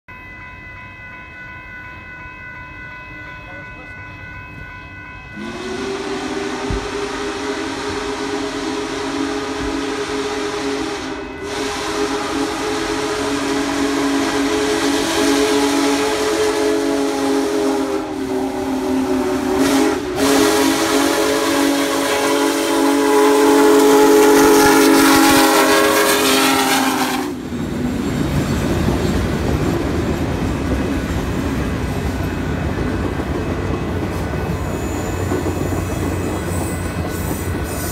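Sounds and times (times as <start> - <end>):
train rolling past: 0.1 - 37.9
steam locomotive whistle: 3.2 - 27.5, 34.0 - 37.9.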